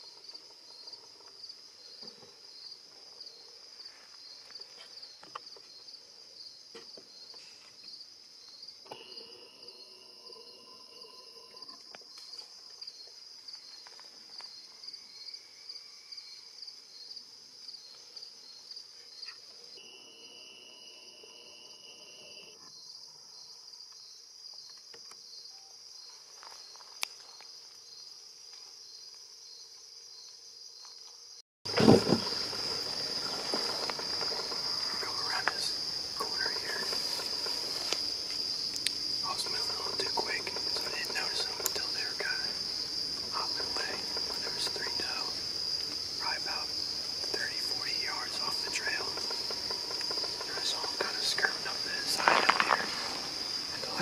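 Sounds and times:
insects chorus: 0.0 - 54.0
sharp thump: 31.7 - 32.3.

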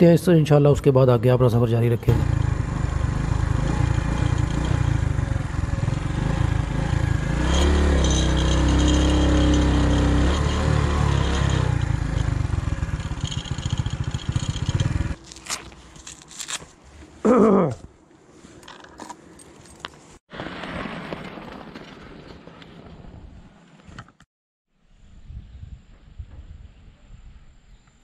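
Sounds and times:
road noise: 0.0 - 24.2
motorcycle engine running: 2.0 - 15.4
sharp clicks and rattles: 7.7 - 15.1.

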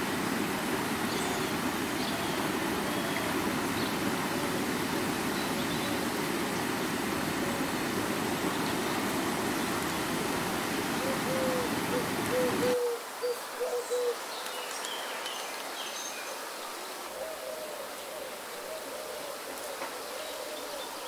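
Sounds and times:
stream rushing over stones: 0.0 - 12.9
bird hooting low notes: 11.0 - 14.2.

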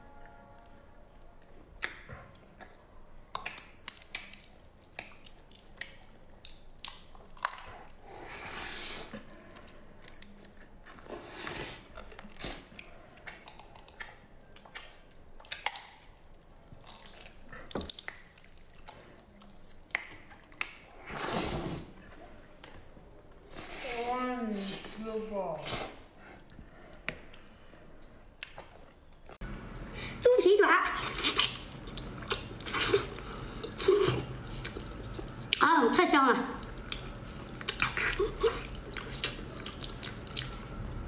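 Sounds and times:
chewing and lip-smacking: 1.4 - 8.2, 8.8 - 21.1, 25.6 - 29.4, 31.0 - 41.0
wet tearing of meat: 31.0 - 35.6, 36.6 - 41.0.

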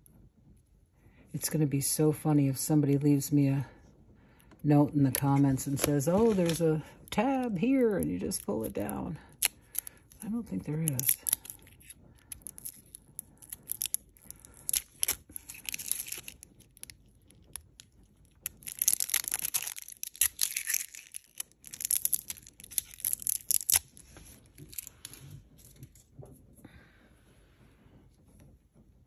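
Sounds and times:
plastic wrapper crackling and tearing: 4.4 - 26.1.

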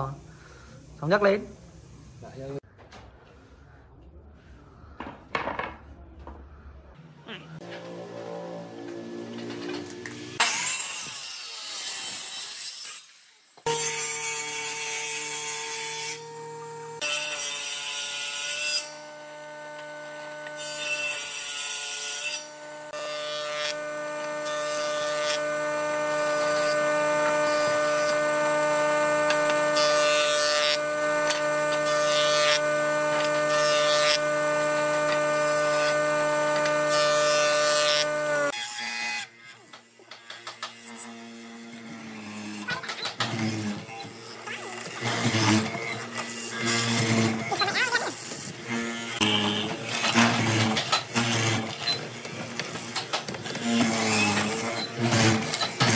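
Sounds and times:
jointer-planer cutting boards: 7.6 - 12.4, 13.6 - 55.9
table saw running: 13.7 - 55.9
mortising machine boring wood: 19.0 - 55.9.

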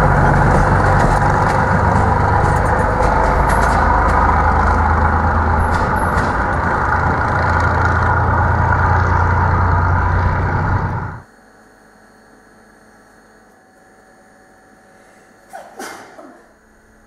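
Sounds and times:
diesel engine humming: 0.0 - 11.3.

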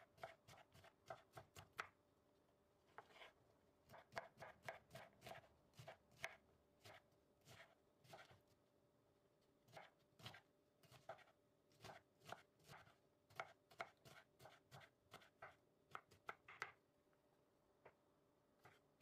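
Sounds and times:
knife chopping on wooden board: 0.2 - 1.9, 3.9 - 8.4, 9.7 - 16.7.

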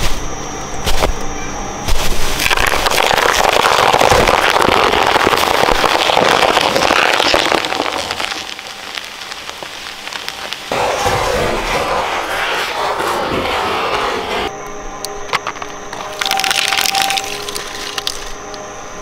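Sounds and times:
shredder crunching plastic toy: 2.4 - 8.8.

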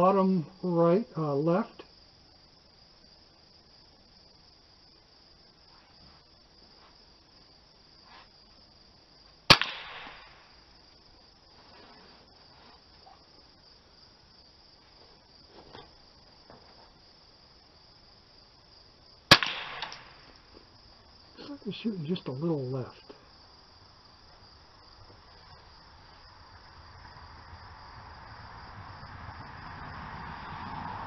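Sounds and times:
rifle shots: 9.5 - 10.4, 19.3 - 20.2.

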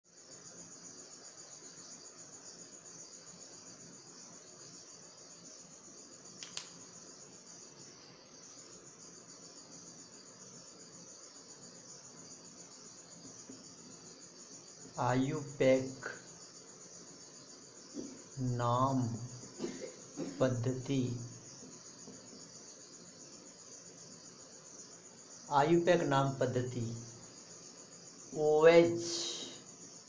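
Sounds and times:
high-pitched insect chirring: 0.1 - 30.0
sharp click: 6.4 - 6.8.

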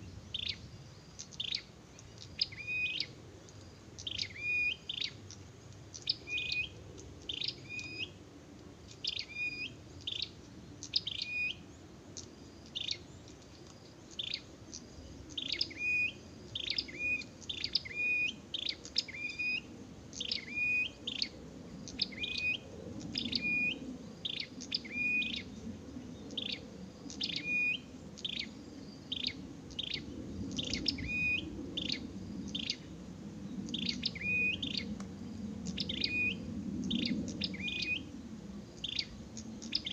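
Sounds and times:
bird chirping calls: 0.0 - 8.2, 33.6 - 35.0, 35.6 - 38.2, 38.8 - 39.9.

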